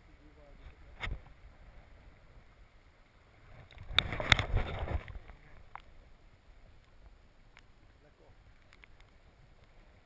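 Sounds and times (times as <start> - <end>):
muffled underwater river wash: 0.0 - 10.0
clicks and knocks underwater: 3.5 - 6.0, 8.5 - 9.8.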